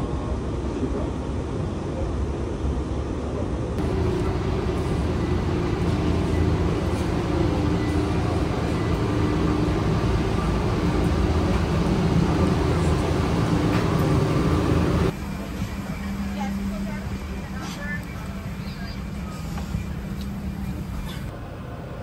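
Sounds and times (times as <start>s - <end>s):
people-mover train running: 0.0s - 22.0s
mechanical drone with low hum: 3.8s - 21.3s.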